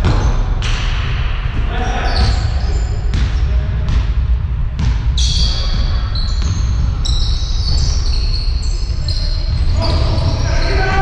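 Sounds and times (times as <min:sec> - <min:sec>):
sneakers squeaking: 0:00.0 - 0:00.8, 0:01.6 - 0:11.0
low rumble in large hall: 0:00.0 - 0:11.0
basketball bouncing on floor: 0:03.1 - 0:08.1.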